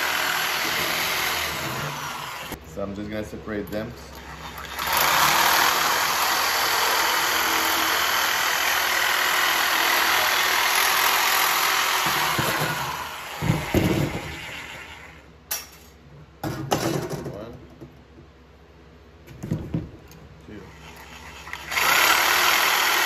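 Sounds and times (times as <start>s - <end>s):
electric metal shear cutting steel: 0.0s - 2.6s, 4.3s - 15.2s, 21.0s - 23.0s.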